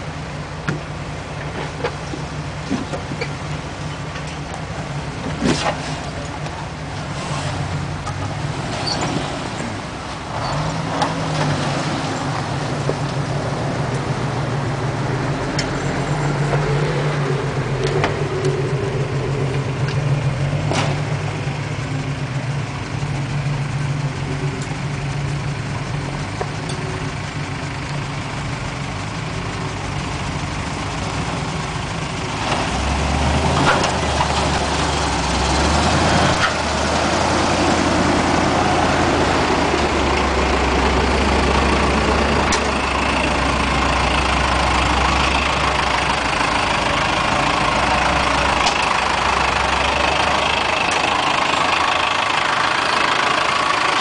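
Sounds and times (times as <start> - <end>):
engines idling: 0.0 - 54.0
deep engine note close by: 7.4 - 26.0.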